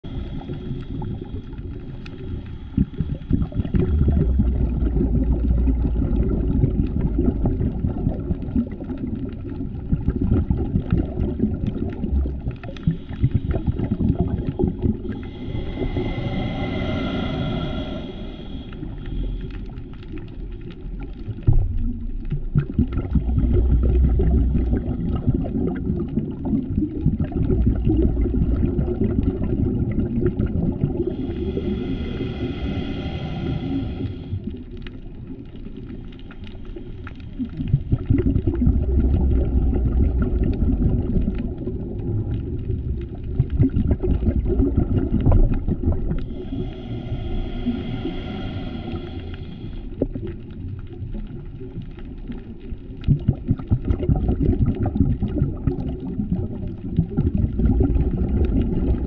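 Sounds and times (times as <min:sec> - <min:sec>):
diver breathing bubbles: 0:00.0 - 0:59.0.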